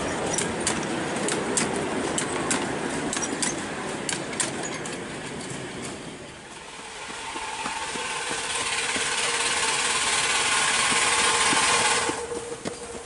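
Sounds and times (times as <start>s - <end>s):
train wheels rumbling over rail joints: 0.0s - 13.0s.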